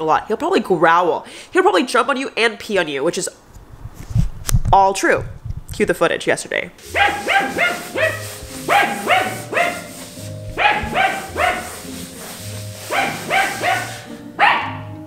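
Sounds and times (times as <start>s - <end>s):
dog barking: 6.8s - 10.0s, 10.6s - 11.9s, 12.9s - 14.9s.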